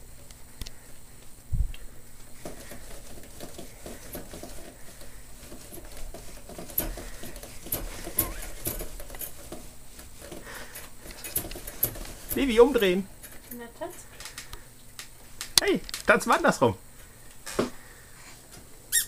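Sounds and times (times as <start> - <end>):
feet patting on tiled floor: 0.7 - 13.0
harness movement: 2.3 - 14.5
sharp clicks: 14.2 - 16.1.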